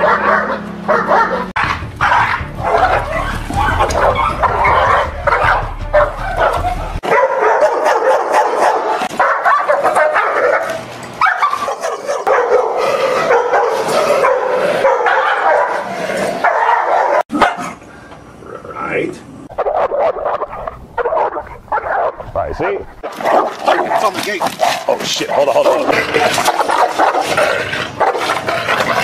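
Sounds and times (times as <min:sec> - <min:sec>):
dogs barking aggressively: 0:00.0 - 0:17.9, 0:19.5 - 0:29.0
low rumble: 0:01.6 - 0:07.0.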